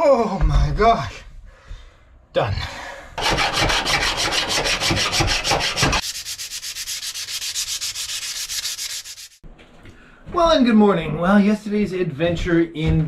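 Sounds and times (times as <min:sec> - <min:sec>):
file scraping steel: 0:03.2 - 0:09.3
sanding pad on steel: 0:03.2 - 0:09.4.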